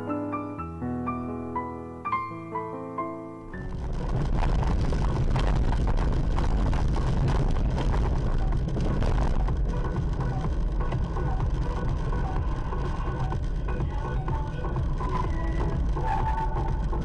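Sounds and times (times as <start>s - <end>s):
car road and engine rumble: 3.4s - 17.0s.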